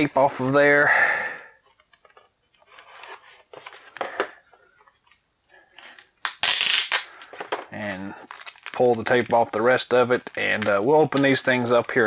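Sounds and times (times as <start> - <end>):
knife slicing packing tape: 6.2 - 7.1
tape ripping: 6.2 - 11.6.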